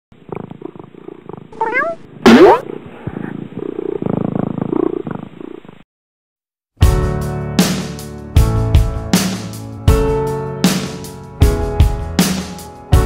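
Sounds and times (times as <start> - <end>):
cat purring: 0.2 - 5.8
cat chirping mews: 1.5 - 2.6
loud cat meow: 1.6 - 2.0.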